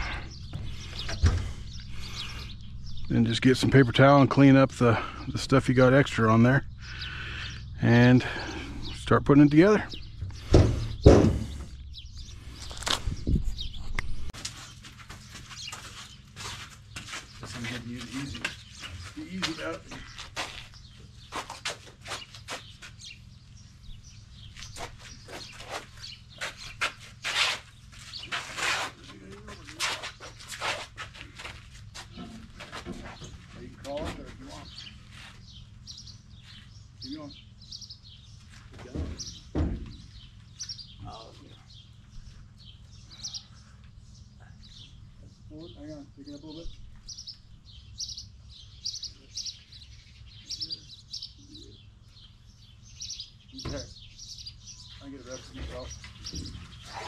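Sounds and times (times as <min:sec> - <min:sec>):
low hum: 0:00.0 - 0:14.4
small birds chirping: 0:00.0 - 0:57.0
short scuffing noises: 0:12.6 - 0:23.2, 0:24.5 - 0:35.6.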